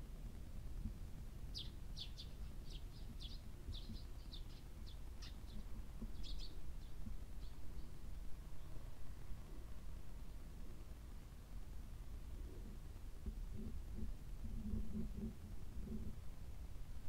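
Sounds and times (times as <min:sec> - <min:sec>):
low background rumble: 0:00.0 - 0:17.0
small bird chirping: 0:01.5 - 0:08.0.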